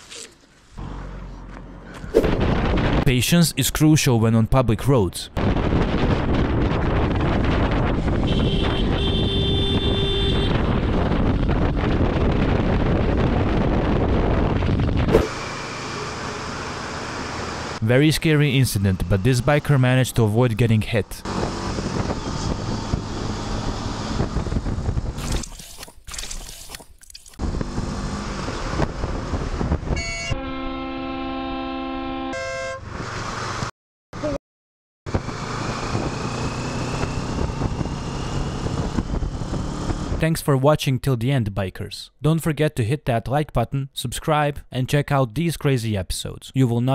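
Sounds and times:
wind rush on helmet microphone: 1.9s - 3.1s, 5.4s - 15.4s, 21.2s - 25.4s, 27.4s - 30.4s, 35.1s - 40.2s
vehicle horn: 8.2s - 10.8s, 29.9s - 32.8s
motorcycle engine: 15.0s - 17.8s, 35.1s - 40.1s.

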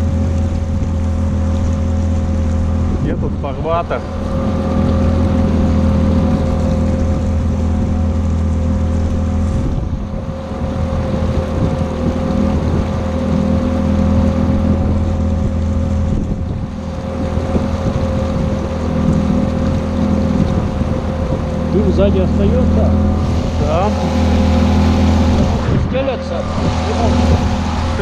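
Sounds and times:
outboard motor running: 0.0s - 28.0s
wind on microphone: 0.0s - 28.0s.

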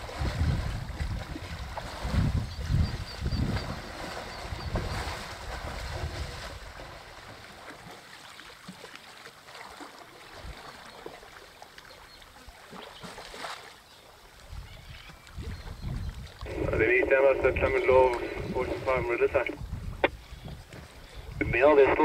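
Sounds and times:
wind buffeting microphone: 0.0s - 7.0s, 14.5s - 22.0s.

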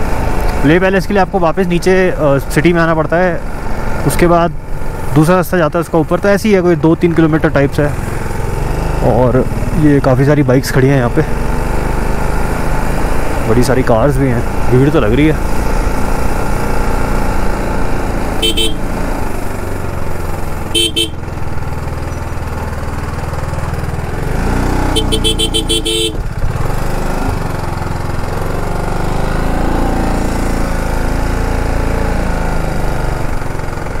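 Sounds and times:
motorcycle engine running: 0.0s - 34.0s
rapidly pulsing horn: 18.4s - 18.9s, 20.7s - 21.2s, 24.9s - 26.3s
vehicle horns honking: 18.4s - 19.0s, 20.7s - 21.3s, 24.8s - 26.4s.

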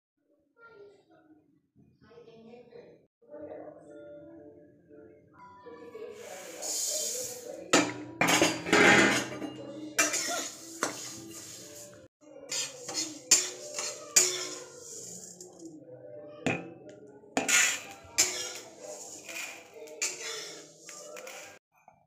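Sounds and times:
metal spatula scraping a pan: 6.2s - 15.7s, 17.4s - 21.6s.

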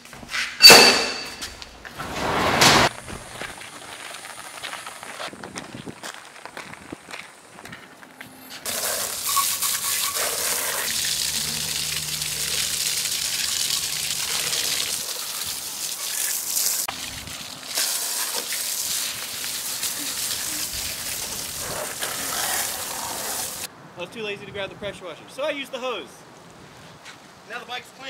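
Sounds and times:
hose spraying water: 8.6s - 23.7s.

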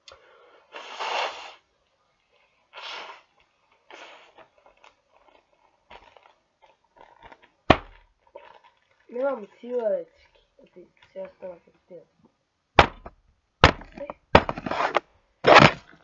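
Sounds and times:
plastic bag crinkling: 3.3s - 11.1s.

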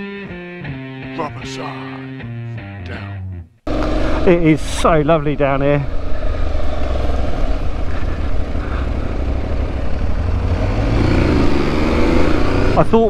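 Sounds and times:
motorcycle engine running: 3.7s - 13.0s.

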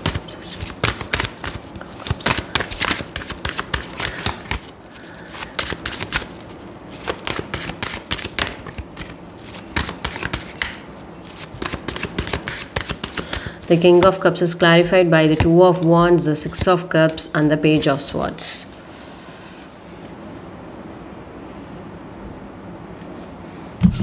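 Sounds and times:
cards being shuffled: 0.0s - 18.2s.

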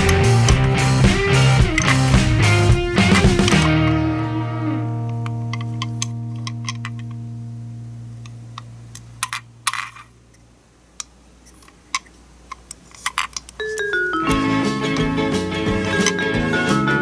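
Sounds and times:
music: 0.0s - 8.0s, 13.8s - 17.0s
toy scraping: 1.4s - 3.8s, 9.2s - 10.2s, 11.4s - 16.3s.

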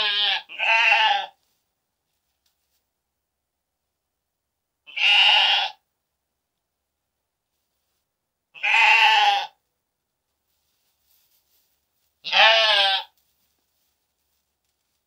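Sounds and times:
sheep bleating: 0.0s - 1.4s, 4.9s - 5.8s, 8.6s - 9.6s, 12.2s - 13.2s.

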